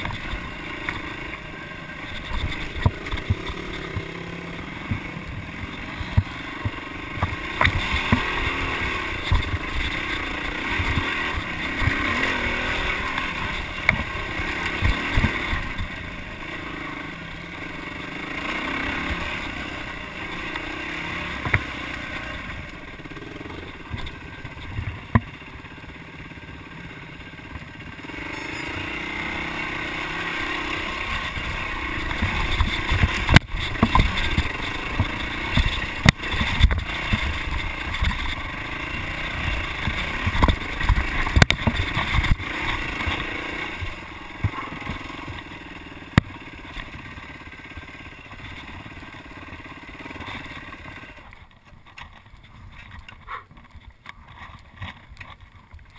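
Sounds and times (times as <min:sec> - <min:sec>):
dirt bike engine revving: 0:00.0 - 0:53.6
bike knocking and clattering: 0:01.9 - 0:16.2, 0:18.5 - 0:25.7, 0:30.6 - 0:55.9
wind rumbling on microphone: 0:30.9 - 0:45.5.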